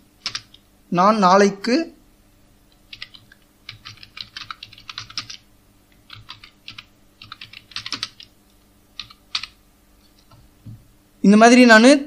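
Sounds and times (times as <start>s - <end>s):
computer keyboard typing: 0.2s - 0.6s, 2.7s - 8.3s, 9.0s - 9.6s.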